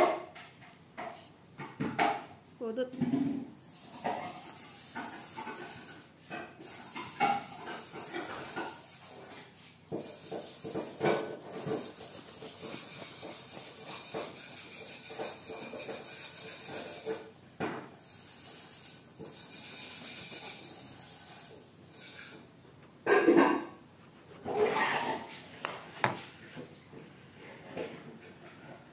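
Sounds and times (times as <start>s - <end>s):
knife sawing through bread: 10.0s - 17.3s, 18.0s - 22.4s.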